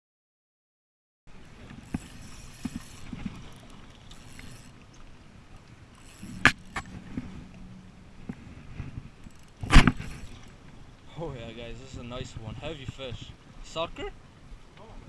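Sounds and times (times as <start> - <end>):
water lapping against rocks: 1.3 - 13.1.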